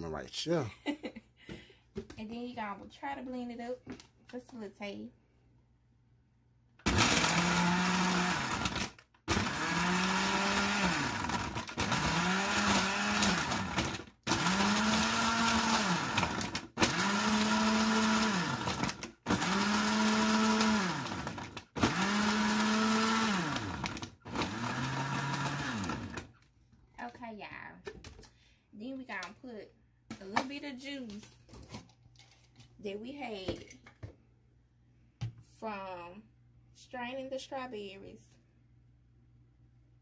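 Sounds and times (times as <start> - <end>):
electric blender whirring: 6.8 - 26.3.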